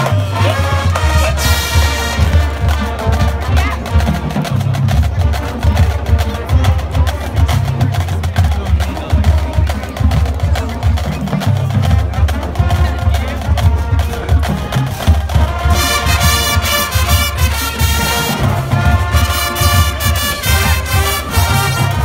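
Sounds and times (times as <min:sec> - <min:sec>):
horn line playing loud: 0:00.0 - 0:04.6, 0:12.3 - 0:22.0
drums: 0:00.0 - 0:22.0
marching band playing: 0:00.0 - 0:22.0.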